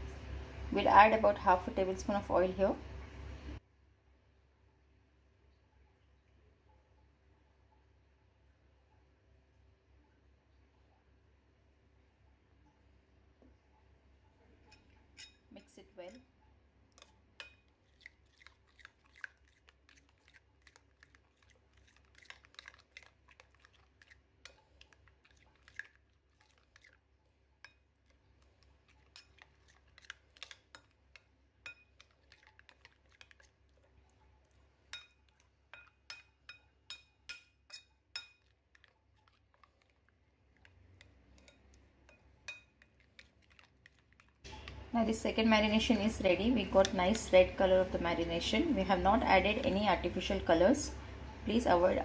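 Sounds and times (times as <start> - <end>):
spoon stirring thick marinade: 14.6 - 16.2, 16.8 - 50.4
spoon clinking against bowl: 17.0 - 17.7, 29.0 - 33.4, 34.9 - 38.9, 41.4 - 43.7.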